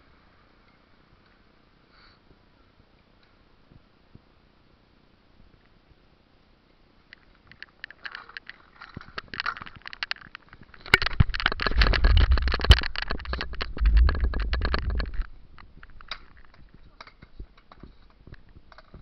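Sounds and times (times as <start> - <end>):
scooter rattling clicks: 7.1 - 19.0
scooter rolling rumble: 7.3 - 19.0.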